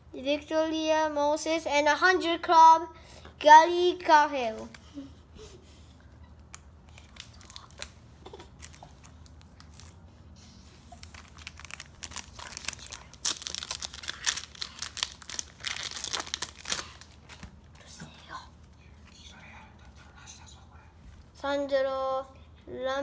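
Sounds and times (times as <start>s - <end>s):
foil pack tearing and crinkling: 8.6s - 10.0s, 10.9s - 17.4s.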